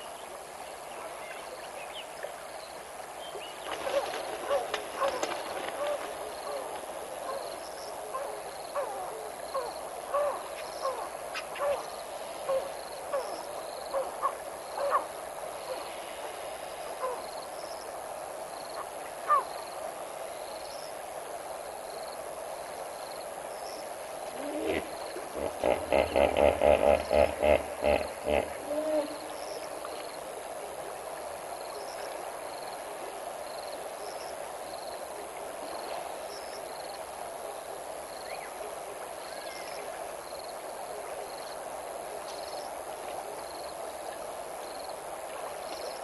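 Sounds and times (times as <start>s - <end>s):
wild dogs chirping: 24.4s - 29.3s
rapid pulsed animal calls: 24.4s - 29.6s.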